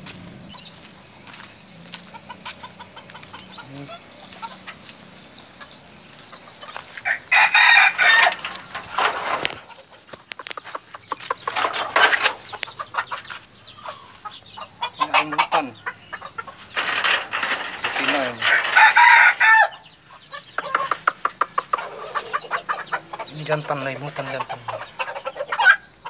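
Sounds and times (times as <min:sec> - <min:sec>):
roosters clucking and calling: 0:00.0 - 0:26.0
rooster crowing: 0:07.0 - 0:08.9, 0:16.8 - 0:19.8.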